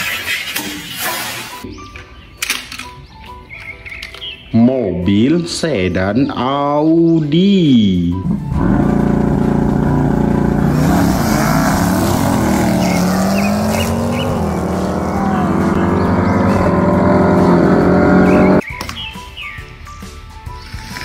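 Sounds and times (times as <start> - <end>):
sports car engines accelerating: 8.2 - 18.6.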